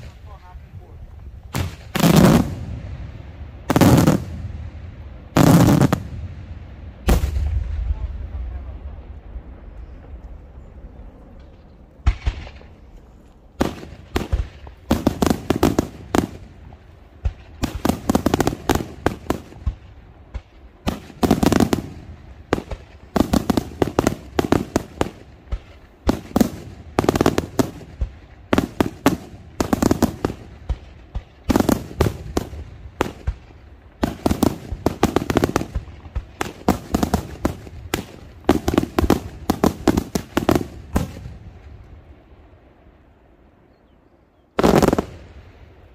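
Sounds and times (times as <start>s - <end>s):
fireworks bangs and crackles: 0.0s - 10.6s, 11.3s - 42.2s, 44.6s - 45.9s.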